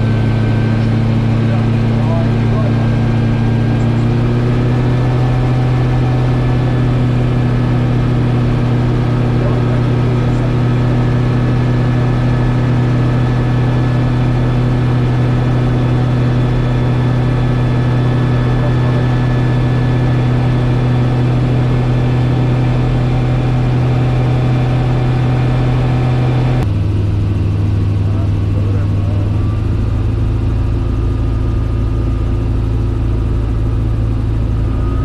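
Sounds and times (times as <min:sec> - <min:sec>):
aircraft engine drone: 0:00.0 - 0:35.0.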